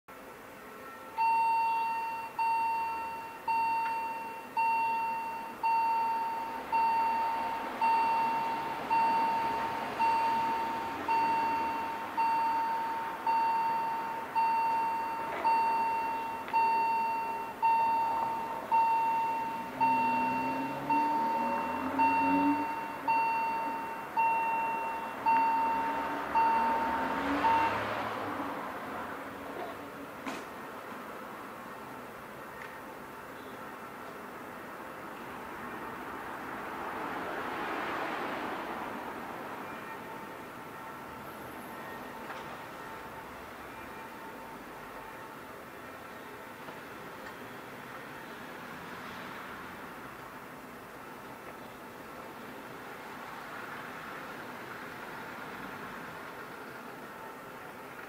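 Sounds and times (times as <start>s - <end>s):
level-crossing warning bell: 1.1s - 28.4s.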